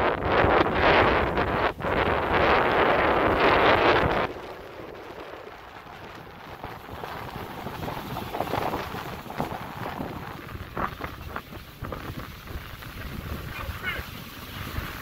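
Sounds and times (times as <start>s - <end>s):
surf washing: 0.0s - 15.0s
wind on microphone: 0.0s - 15.0s.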